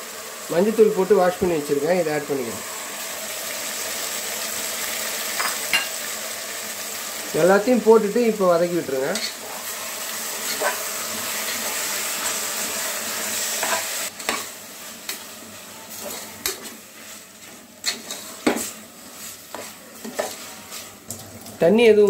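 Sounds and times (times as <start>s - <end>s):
food sizzling in oil: 0.0s - 22.0s
spatula scraping pot: 9.1s - 12.5s, 15.9s - 21.3s.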